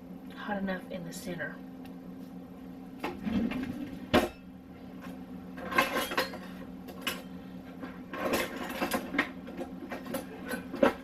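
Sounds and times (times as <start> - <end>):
low steady hum: 0.0 - 11.0
metal utensils clattering: 5.6 - 7.3, 8.1 - 11.0.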